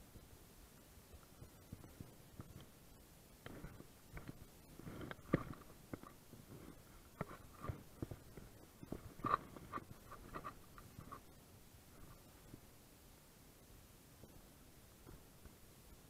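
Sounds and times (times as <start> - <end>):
hands rubbing on reel and line: 3.4 - 11.4.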